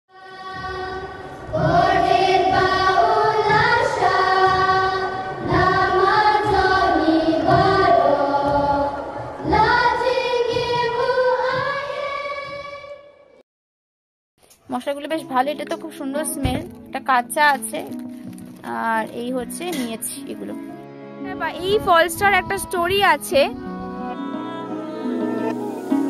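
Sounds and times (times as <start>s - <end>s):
children's choir singing: 0.1s - 13.3s.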